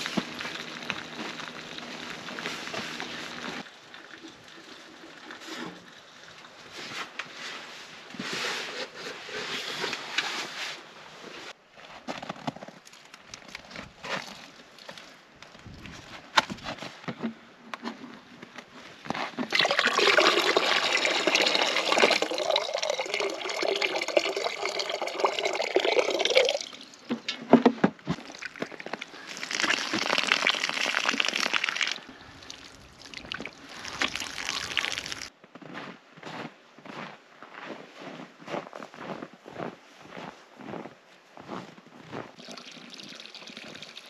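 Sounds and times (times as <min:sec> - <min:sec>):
water pouring into plastic cooler: 0:19.5 - 0:27.0, 0:28.2 - 0:35.3, 0:42.4 - 0:44.0
water splashing on face: 0:29.3 - 0:35.3.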